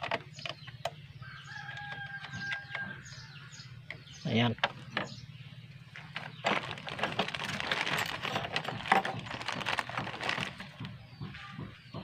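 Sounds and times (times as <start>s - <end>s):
plastic bag crinkling: 6.0s - 10.9s.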